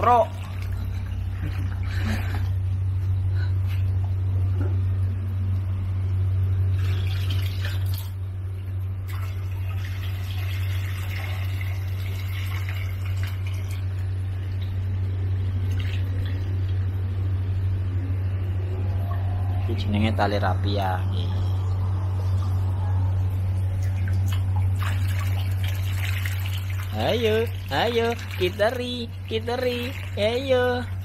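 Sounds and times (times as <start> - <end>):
constant low hum: 0.0 - 31.0
water running and splashing: 9.0 - 14.0, 23.6 - 31.0.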